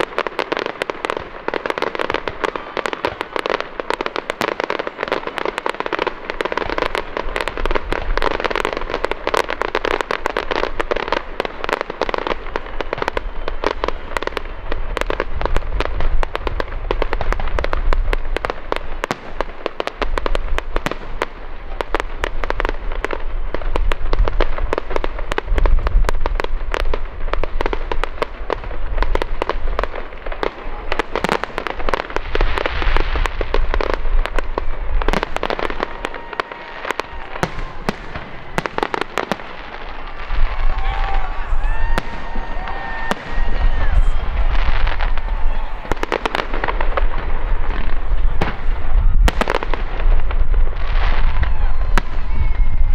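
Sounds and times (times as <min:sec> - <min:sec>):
fireworks booming: 0:00.0 - 0:52.9
fireworks crackling: 0:00.0 - 0:52.9.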